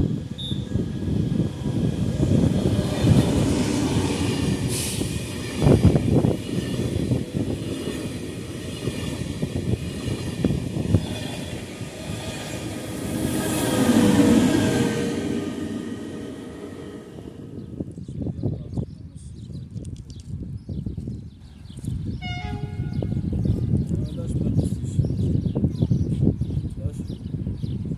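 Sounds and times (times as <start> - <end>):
high-speed train passing: 0.0 - 18.3, 22.2 - 23.8.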